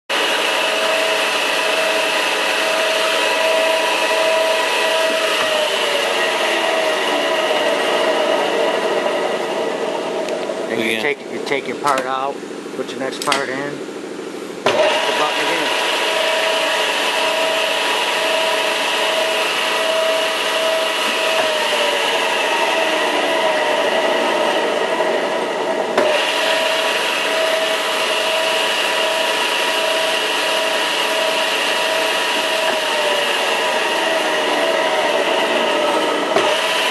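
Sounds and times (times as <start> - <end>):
lathe whirring and whining: 0.1 - 12.8, 13.9 - 36.9.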